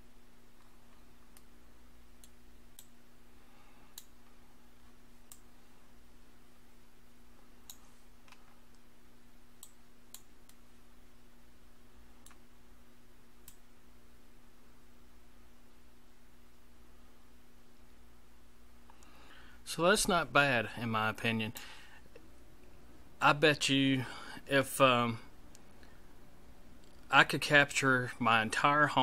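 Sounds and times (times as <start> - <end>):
steady low hum: 0.0 - 29.0
computer mouse clicking: 2.2 - 3.0, 5.3 - 5.5, 7.6 - 8.8, 12.2 - 12.4, 13.4 - 13.6.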